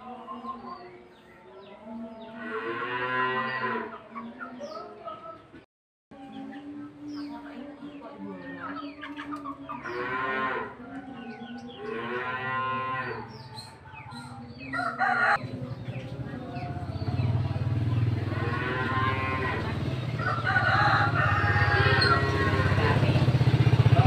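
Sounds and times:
drawn-out animal calls: 0:16.1 - 0:24.0.

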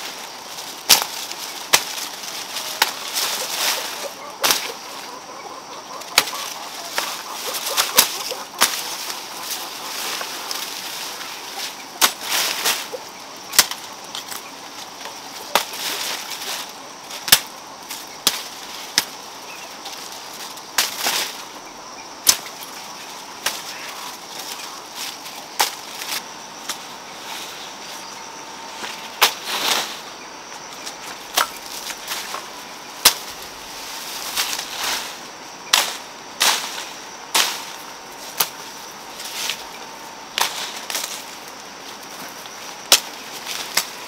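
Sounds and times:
stems and leaves rustling: 0:00.0 - 0:44.0
sickle slashing through stalks: 0:00.2 - 0:04.9, 0:06.1 - 0:14.4, 0:28.8 - 0:30.1, 0:30.9 - 0:38.6, 0:40.4 - 0:41.3.

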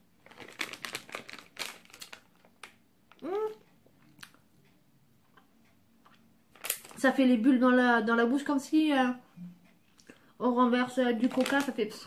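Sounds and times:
plastic candy wrapper crinkling: 0:00.2 - 0:03.3, 0:06.5 - 0:07.2, 0:11.0 - 0:12.0
person saying ooh: 0:03.2 - 0:03.6.

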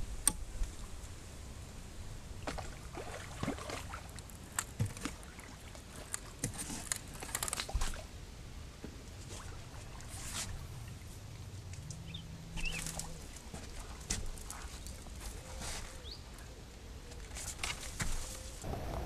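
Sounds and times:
water splashing and sloshing: 0:00.0 - 0:16.4
wind rumble on microphone: 0:18.6 - 0:19.0.

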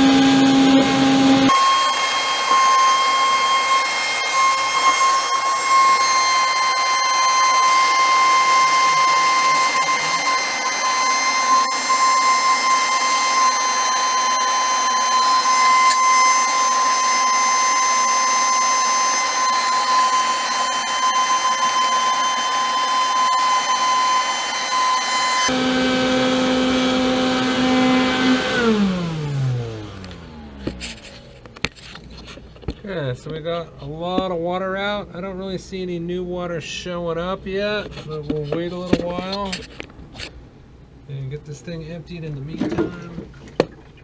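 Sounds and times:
shop vacuum whining: 0:00.0 - 0:31.7.

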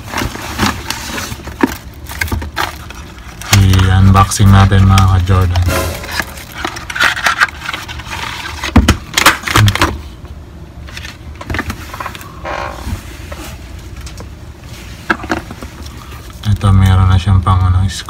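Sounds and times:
paper packaging tearing and rustling: 0:00.0 - 0:09.8.

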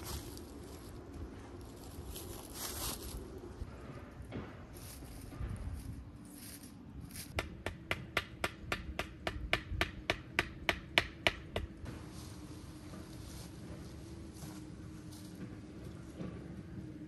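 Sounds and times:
hammer striking tent stake: 0:07.4 - 0:11.7.

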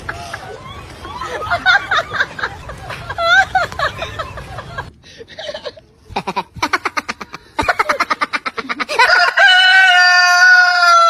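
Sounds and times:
rooster crowing: 0:09.0 - 0:11.0.

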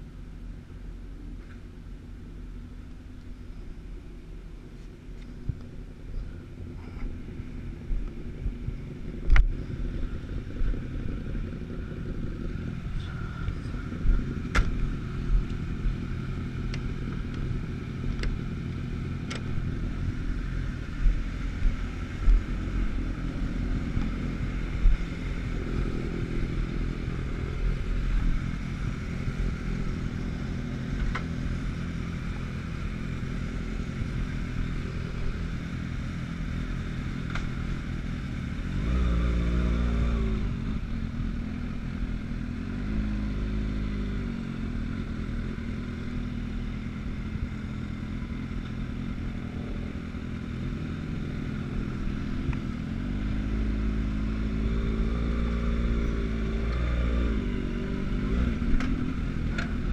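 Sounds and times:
motorcycle engine idling: 0:00.0 - 0:59.9.

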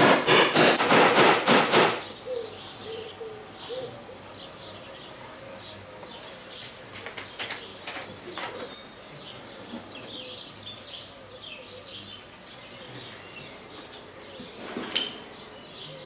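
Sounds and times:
sharp clicks and knocks: 0:00.0 - 0:02.1
small birds chirping: 0:01.9 - 0:16.0.

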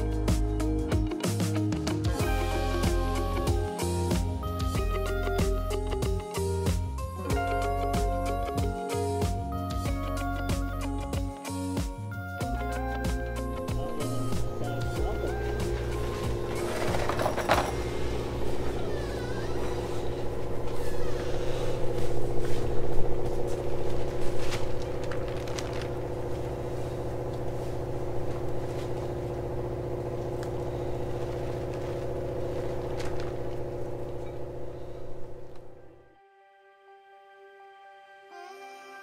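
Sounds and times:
machine hum: 0:12.1 - 0:37.5.

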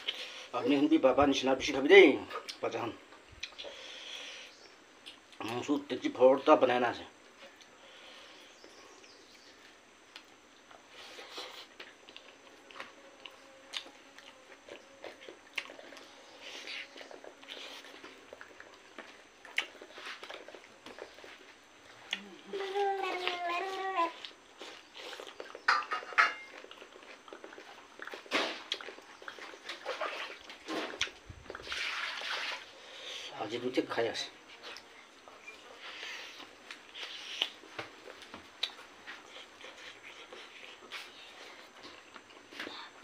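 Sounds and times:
wet chewing and lip smacks: 0:03.4 - 0:03.8, 0:10.1 - 0:22.4, 0:23.1 - 0:32.0, 0:35.8 - 0:42.9.

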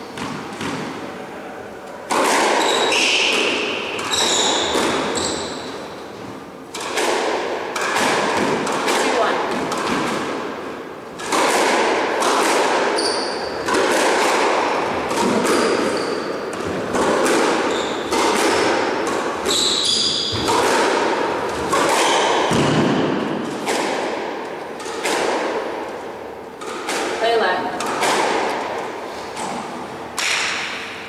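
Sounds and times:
squash ball hitting rackets and walls: 0:00.0 - 0:01.2, 0:02.0 - 0:31.0
shoes squeaking on wooden floor: 0:04.0 - 0:06.4, 0:13.0 - 0:13.7, 0:15.3 - 0:17.0, 0:17.6 - 0:18.2, 0:19.4 - 0:20.5.

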